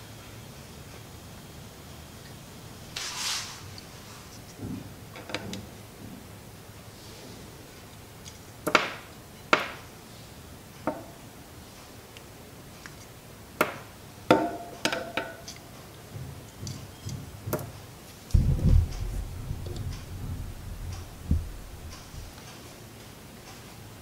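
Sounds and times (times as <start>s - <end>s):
low handling thump: 18.4s - 22.4s.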